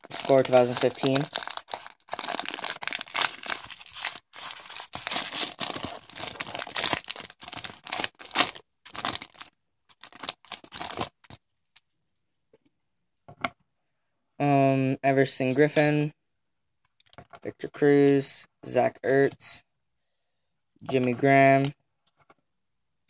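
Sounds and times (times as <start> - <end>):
cards rustling: 0.0 - 11.4
plastic wrapper tearing and crinkling: 0.0 - 11.4.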